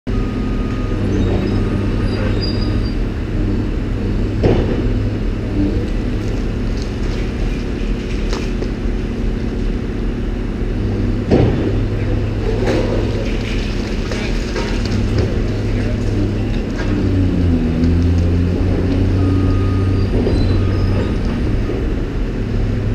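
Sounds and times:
excavator diesel engines running: 0:00.1 - 0:22.9
debris knocking: 0:11.3 - 0:19.2.

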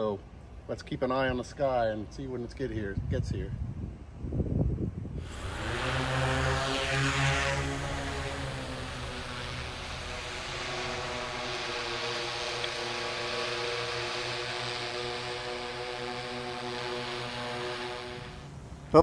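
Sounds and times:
drone propellers humming: 0:05.2 - 0:19.0
rushing air hiss: 0:05.2 - 0:19.0.

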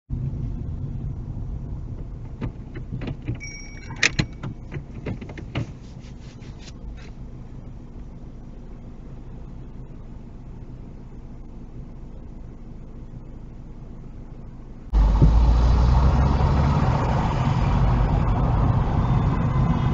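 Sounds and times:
car engine and road noise: 0:00.1 - 0:19.9
clicks and knocks: 0:02.0 - 0:05.8
brief high tone: 0:03.4 - 0:04.4.

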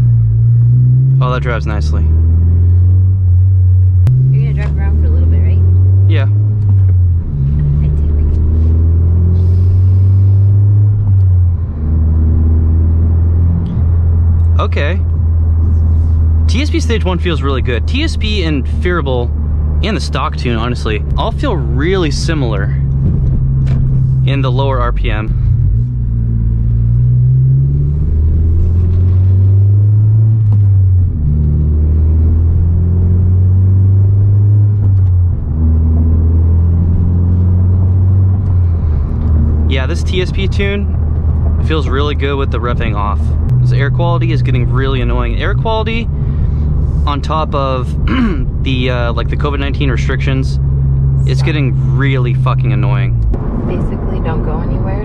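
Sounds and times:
car engine drone from cabin: 0:00.0 - 0:55.0.

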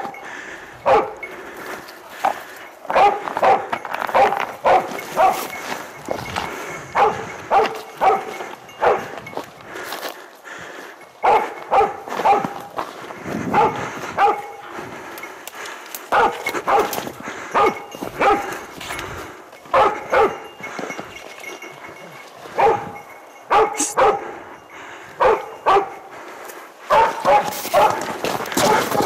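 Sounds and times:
dog barking: 0:00.8 - 0:01.2, 0:02.9 - 0:05.5, 0:06.9 - 0:09.1, 0:11.2 - 0:12.7, 0:13.5 - 0:14.7, 0:16.1 - 0:18.6, 0:19.7 - 0:20.4, 0:22.5 - 0:24.3, 0:25.2 - 0:26.1, 0:26.9 - 0:29.0.

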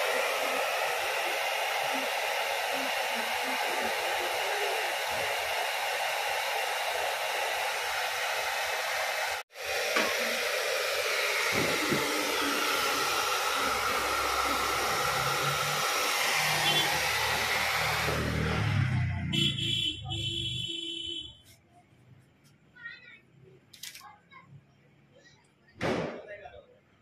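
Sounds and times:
hair dryer blowing: 0:00.0 - 0:19.2.

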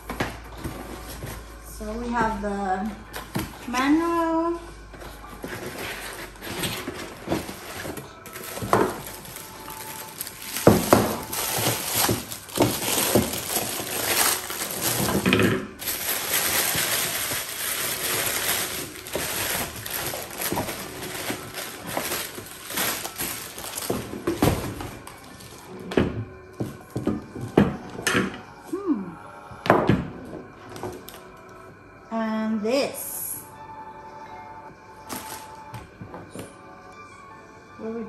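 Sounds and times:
paper and packaging rustling: 0:00.0 - 0:01.7, 0:04.9 - 0:26.0, 0:35.1 - 0:35.9.

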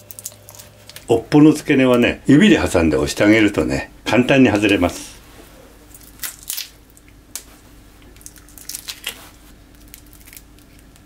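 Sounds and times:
shrimp shells crackling: 0:00.0 - 0:01.1, 0:08.1 - 0:11.0.

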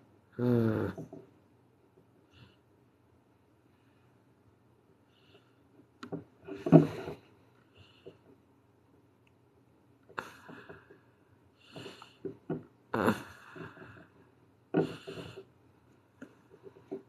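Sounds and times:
breathy puffs: 0:11.6 - 0:15.5.

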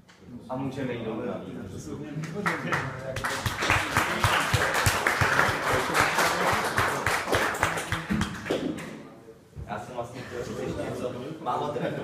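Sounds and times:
audience applauding: 0:02.3 - 0:08.7.

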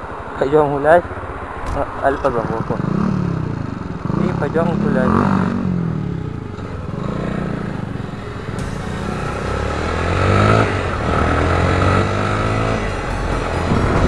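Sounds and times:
motorcycle engine running: 0:02.2 - 0:14.0.

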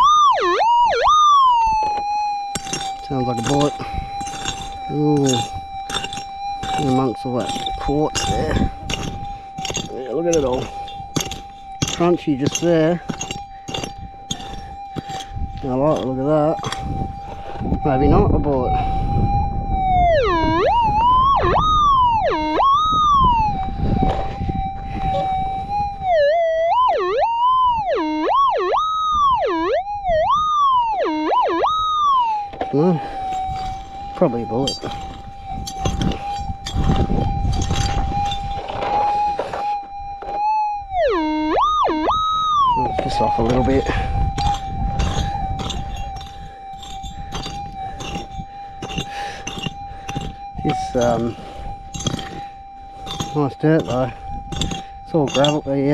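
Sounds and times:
metal detector warbling tone: 0:00.0 - 0:55.9
digging into gravel: 0:01.9 - 0:17.6, 0:32.7 - 0:40.4, 0:42.8 - 0:55.9.

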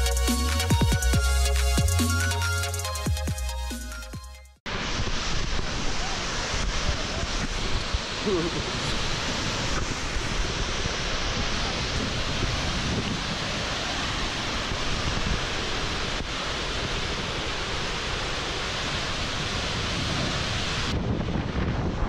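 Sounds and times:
waterfall rushing onto rocks: 0:04.7 - 0:21.9.

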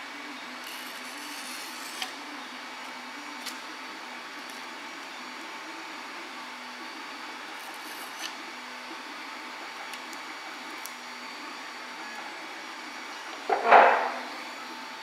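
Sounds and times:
fan whirring: 0:09.6 - 0:15.0.

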